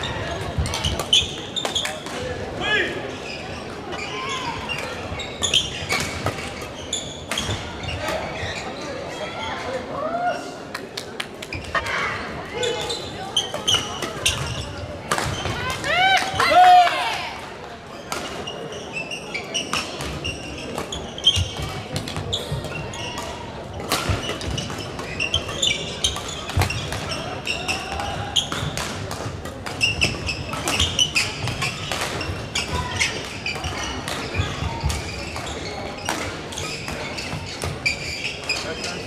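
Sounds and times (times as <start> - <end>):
rackets hitting shuttlecock: 13.4 - 16.6, 19.6 - 39.0
shoes squeaking on wooden floor: 29.8 - 39.0.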